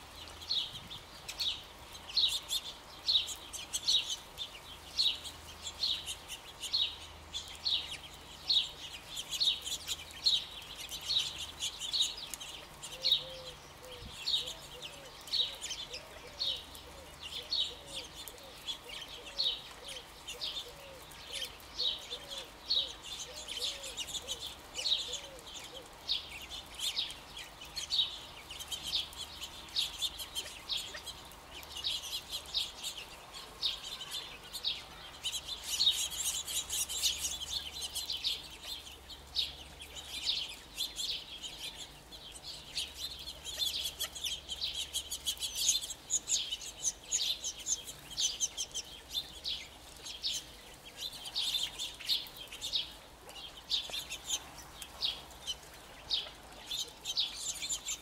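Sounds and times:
quail chipping and clucking: 0.6s - 58.0s.

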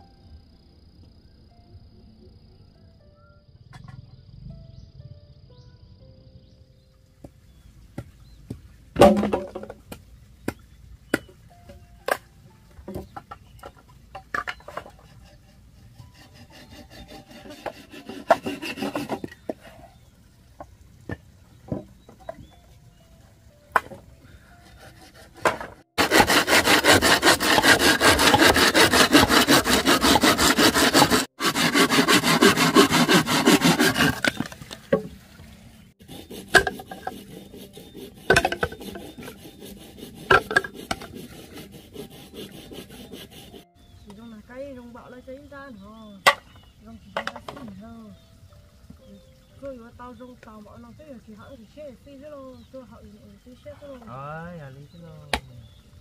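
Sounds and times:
bamboo knocking on wooden block: 8.0s - 11.4s, 38.3s - 39.0s
saw cutting bamboo: 14.3s - 19.7s, 24.5s - 35.0s, 36.0s - 43.7s.

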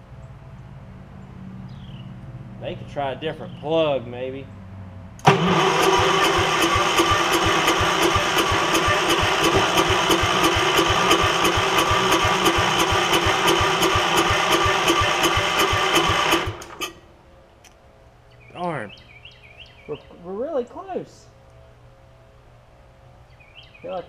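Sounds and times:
engine cranking without starting: 5.2s - 17.0s.

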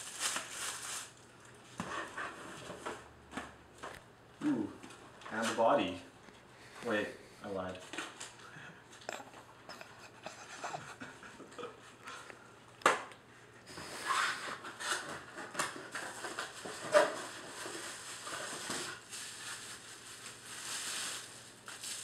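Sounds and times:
plastic bag rustling: 0.0s - 1.3s, 14.8s - 22.0s.

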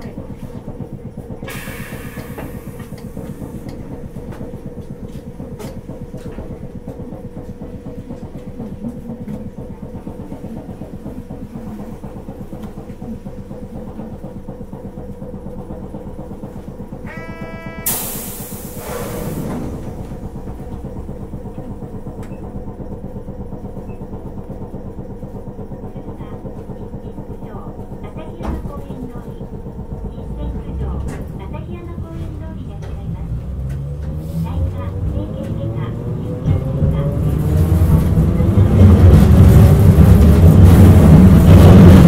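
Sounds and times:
tram electrical hum: 0.0s - 42.0s
short buzzer tone: 17.0s - 18.5s.

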